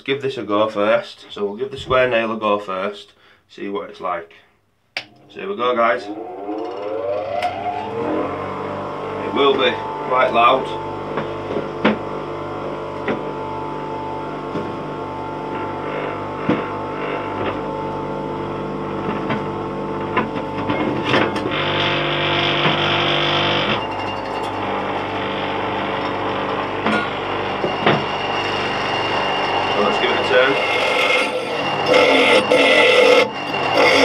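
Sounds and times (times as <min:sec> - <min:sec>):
bench grinder motor hum: 0:05.0 - 0:13.3, 0:20.0 - 0:34.0
nail grinding on wheel: 0:26.0 - 0:34.0.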